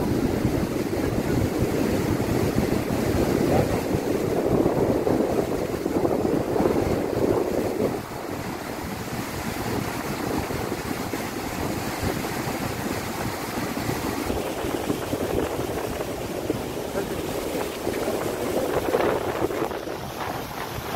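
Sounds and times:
choppy water washing: 0.0 - 20.9
wind buffeting microphone: 0.0 - 20.9.

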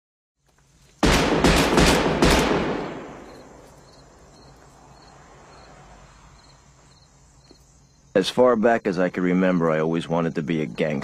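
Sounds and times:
crickets chirping: 0.4 - 1.2, 1.8 - 11.0
handgun shots: 1.0 - 3.6.

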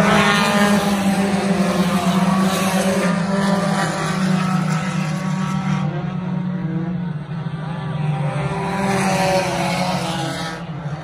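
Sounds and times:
race car engines passing: 0.0 - 11.0.

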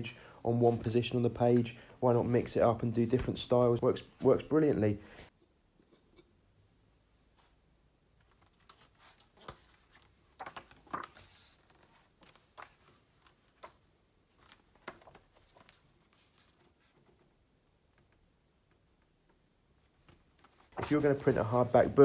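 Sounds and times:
book pages turning: 8.2 - 17.2, 19.9 - 22.0.

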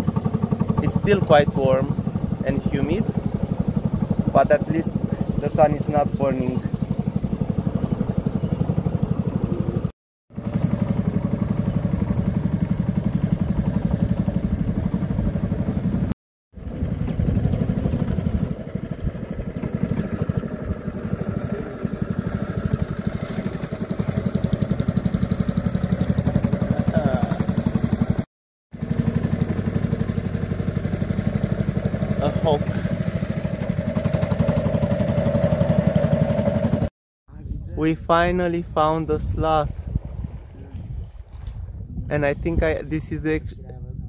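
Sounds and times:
motorboat engine droning: 0.0 - 36.9.

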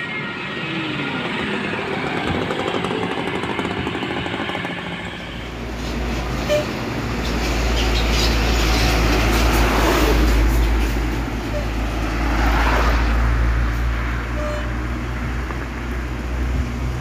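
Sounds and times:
truck passing by: 5.3 - 17.0.

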